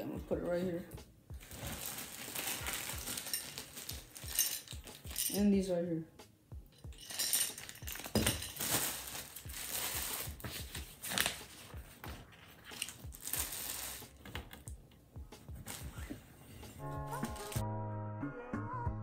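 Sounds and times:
plastic packaging crinkling: 0:01.4 - 0:05.4, 0:07.0 - 0:11.8, 0:12.4 - 0:14.4.

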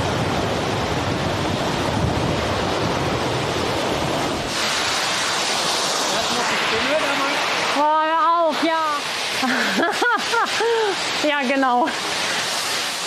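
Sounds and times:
wind buffeting the microphone: 0:00.0 - 0:09.3
surf washing on a beach: 0:00.0 - 0:13.0.

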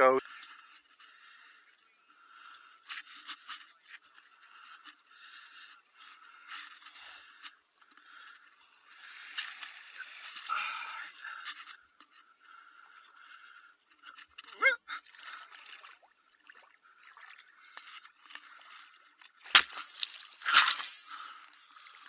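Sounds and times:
sea water lapping: 0:12.4 - 0:22.0.

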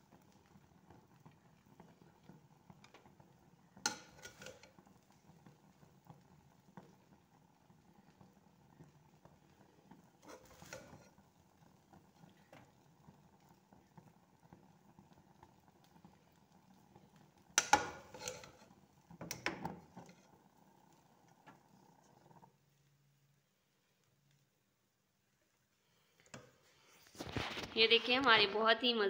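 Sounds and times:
spoon knocking and scraping plate: 0:03.9 - 0:04.7, 0:17.6 - 0:18.6.

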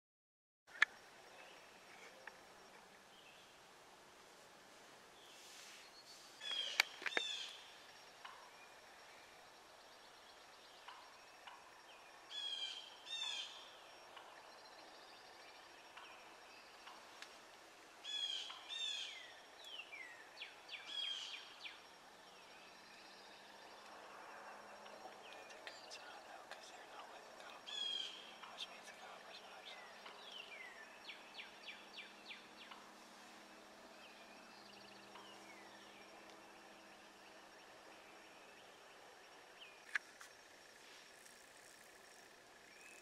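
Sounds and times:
songbirds singing: 0:00.7 - 0:03.7, 0:05.0 - 0:43.0
faint outdoor hiss: 0:00.7 - 0:43.0
sharp clicks: 0:06.5 - 0:07.3.

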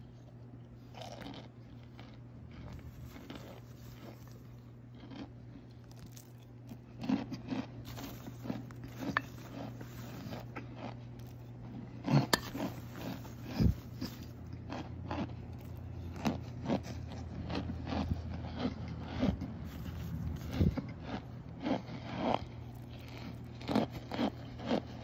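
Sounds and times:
hard cornstarch crunching: 0:00.0 - 0:25.0
spoon digging: 0:02.6 - 0:04.6, 0:05.8 - 0:14.5, 0:19.6 - 0:20.9.

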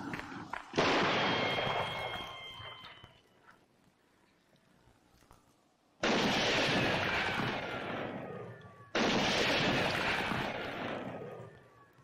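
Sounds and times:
gunshots with echoing tail: 0:00.7 - 0:02.4, 0:06.0 - 0:11.7.

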